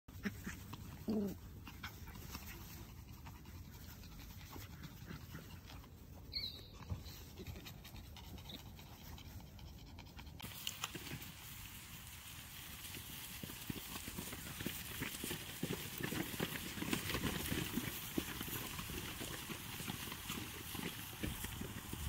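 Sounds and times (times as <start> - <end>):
puppies panting: 0.1 - 22.0
rustling on grass: 0.1 - 22.0
puppy whining: 0.5 - 2.3, 5.7 - 8.6
puppy squeaking: 6.2 - 7.5.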